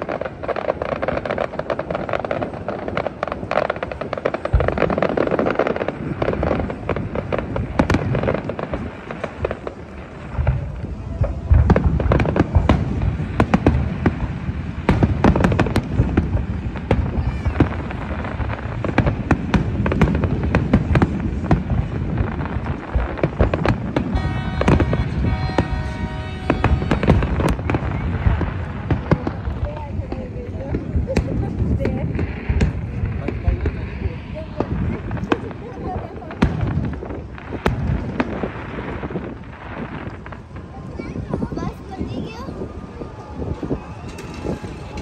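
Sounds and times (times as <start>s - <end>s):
firework shells bursting: 22.5s - 29.5s.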